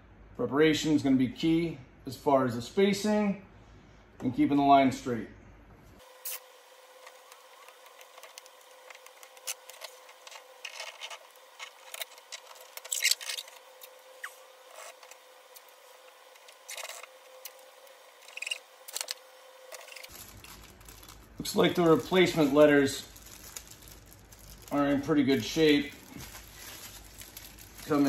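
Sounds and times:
faint steady hum: 0.0 - 28.0
masking tape ripping: 6.2 - 6.4, 7.0 - 17.6, 18.2 - 28.0.

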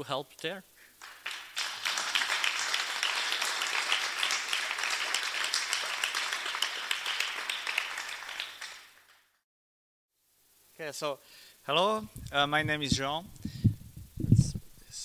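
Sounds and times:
audience applauding: 1.0 - 9.4.

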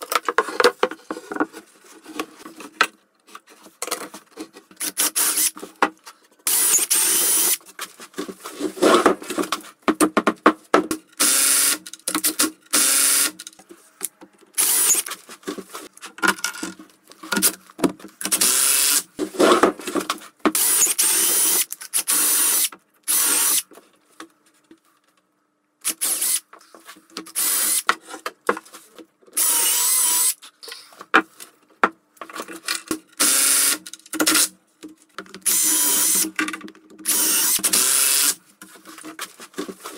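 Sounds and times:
cordless drill driving screws: 4.8 - 5.5, 6.5 - 7.6, 11.2 - 11.9, 12.7 - 13.4, 14.6 - 15.1, 18.3 - 19.1, 20.6 - 23.6, 25.9 - 26.4, 27.4 - 27.8, 29.4 - 30.4, 33.2 - 34.5, 35.5 - 36.3, 37.0 - 38.4.

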